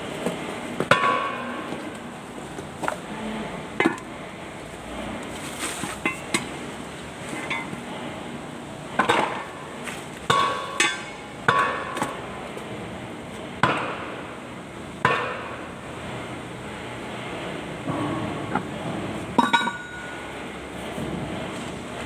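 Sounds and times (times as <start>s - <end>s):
metal-on-metal clanks: 10.3s - 12.1s, 19.4s - 20.2s.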